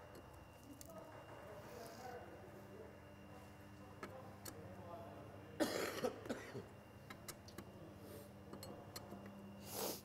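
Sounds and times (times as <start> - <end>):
person coughing: 5.6 - 6.7.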